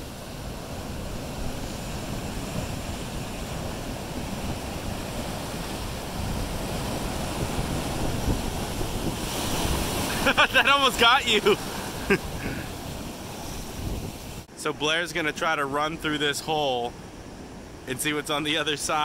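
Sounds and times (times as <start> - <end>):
wind buffeting microphone: 0.0 - 10.6, 11.4 - 14.5
surf breaking on rocks: 0.0 - 14.5.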